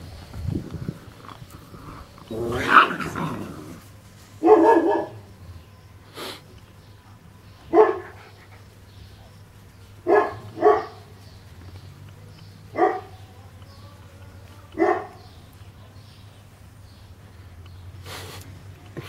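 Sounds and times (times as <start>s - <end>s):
puppy barking: 4.4s - 5.3s, 7.7s - 8.2s, 10.0s - 11.1s, 12.7s - 13.2s, 14.8s - 15.2s.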